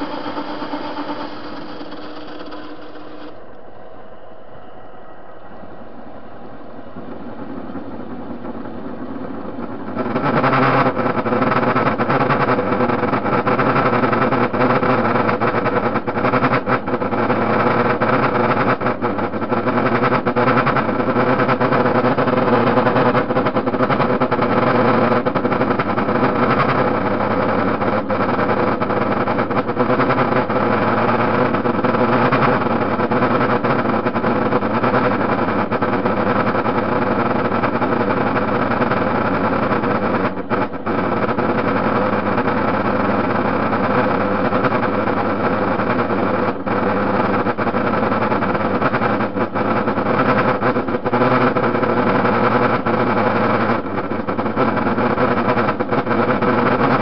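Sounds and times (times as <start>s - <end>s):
metal lathe whirring: 0.0s - 11.3s.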